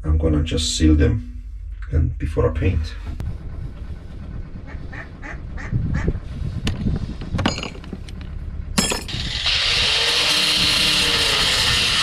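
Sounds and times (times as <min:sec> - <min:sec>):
power tool starting: 0:09.1 - 0:12.0.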